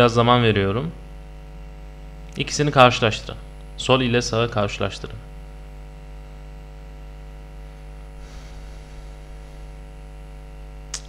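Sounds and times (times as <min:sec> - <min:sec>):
electrical mains hum: 0:00.0 - 0:11.0
soft breath: 0:08.2 - 0:10.0.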